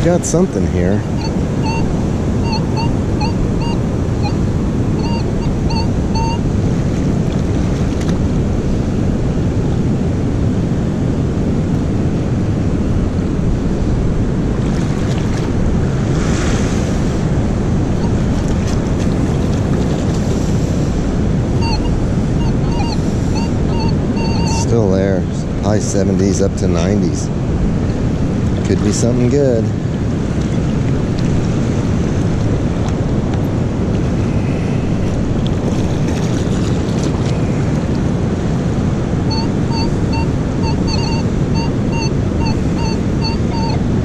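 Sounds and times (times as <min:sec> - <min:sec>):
surf: 0:00.0 - 0:44.0
wind noise on microphone: 0:00.0 - 0:44.0
metal detector beeps: 0:01.2 - 0:06.5, 0:21.6 - 0:24.8, 0:39.3 - 0:43.8.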